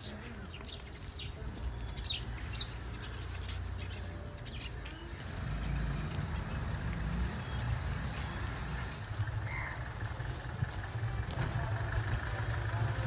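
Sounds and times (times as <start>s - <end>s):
bird chirps: 0.0s - 6.6s
steady low rumble: 5.3s - 13.0s.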